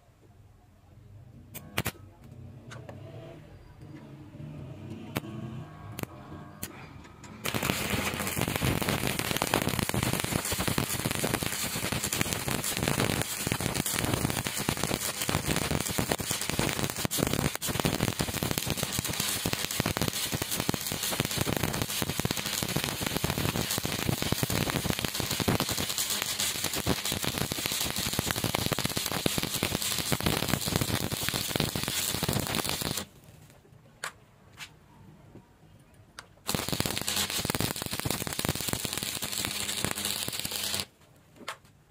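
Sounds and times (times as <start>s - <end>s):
welding arc crackling: 6.0s - 6.7s, 7.4s - 33.2s, 36.5s - 40.9s.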